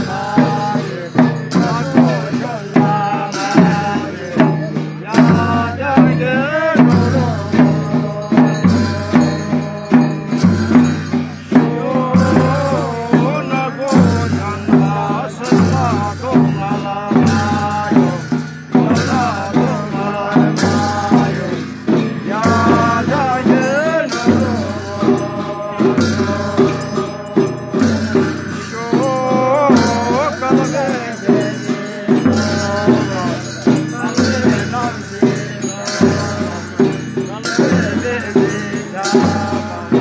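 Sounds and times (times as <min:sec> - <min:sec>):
rattling percussion: 0:00.0 - 0:40.0
steady drum beat: 0:00.0 - 0:40.0.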